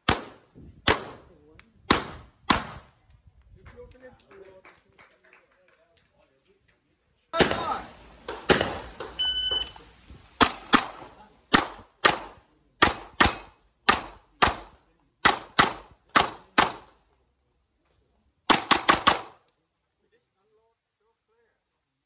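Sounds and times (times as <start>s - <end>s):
carbine gunshots: 7.4s - 9.2s, 18.5s - 19.4s
shot timer beep: 9.2s - 9.8s.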